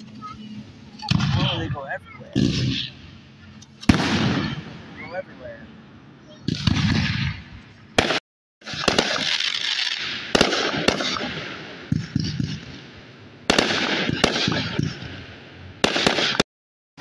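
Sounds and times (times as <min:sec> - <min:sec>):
fireworks bangs with crackle: 0:00.9 - 0:05.5, 0:06.3 - 0:16.5.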